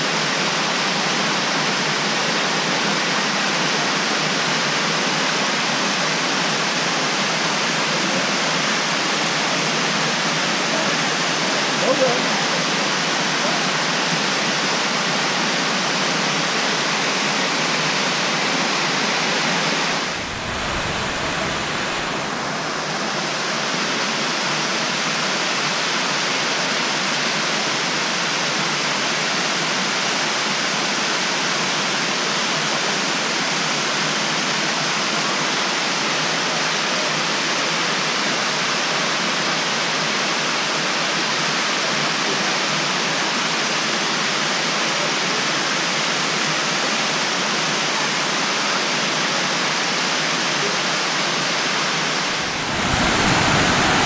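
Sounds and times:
waterfall rushing: 0.0 - 34.4, 49.5 - 54.0
low rumble: 19.9 - 22.8, 52.2 - 54.0.

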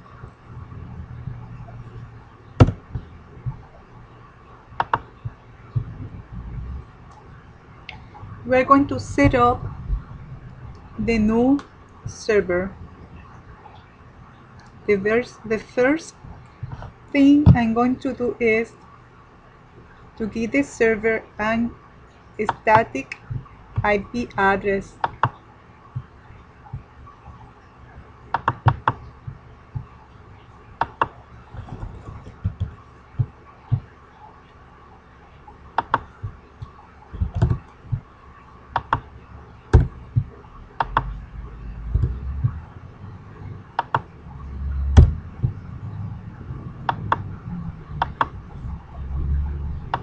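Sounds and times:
low rumble: 0.0 - 14.9, 39.2 - 50.0
mouse and keyboard clicks: 35.8 - 36.1.

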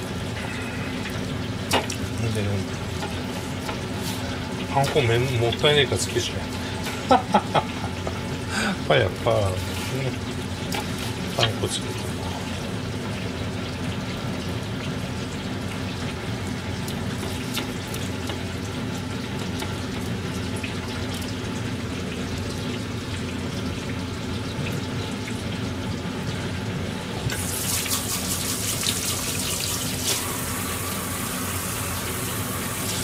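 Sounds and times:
kitchen hiss and hum: 0.0 - 33.0
tap water splashing into sink: 1.7 - 2.0.

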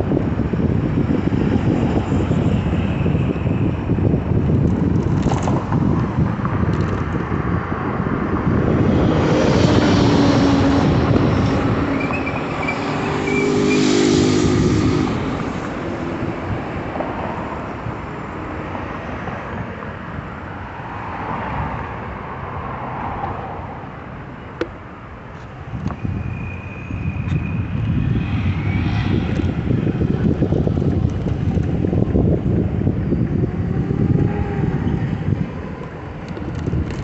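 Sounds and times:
city street traffic: 0.0 - 37.0
wind buffeting microphone: 0.0 - 37.0
motor vehicle passing close: 8.5 - 15.8.

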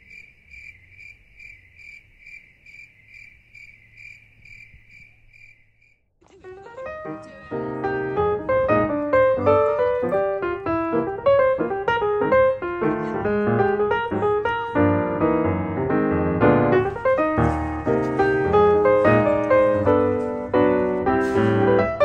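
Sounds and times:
piano music: 6.2 - 22.0.

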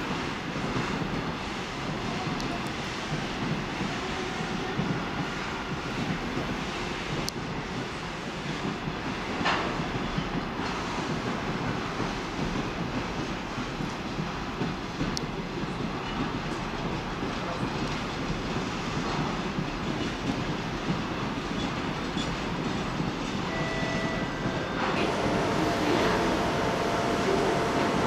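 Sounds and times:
freight train rumble and clatter: 0.0 - 28.0
diesel locomotive hum: 21.1 - 28.0.

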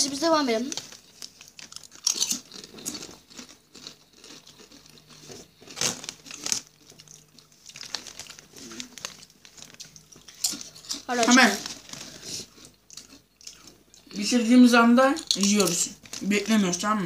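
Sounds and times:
chip bag crinkling: 0.0 - 14.2, 15.2 - 17.0.

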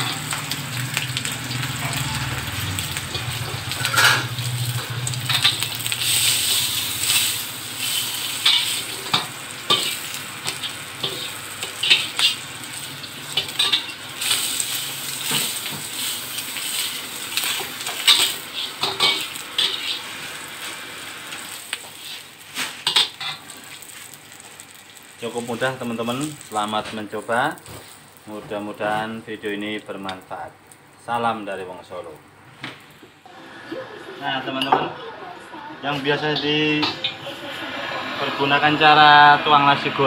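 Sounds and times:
egg sizzling in oil: 0.0 - 31.1
metal spatula scraping wok: 3.0 - 12.4, 17.5 - 20.1.

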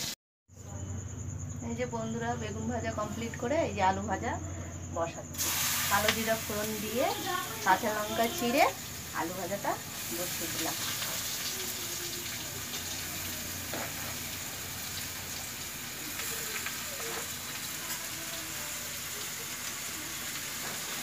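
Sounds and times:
hot oil sizzling in a wok: 5.4 - 21.0.

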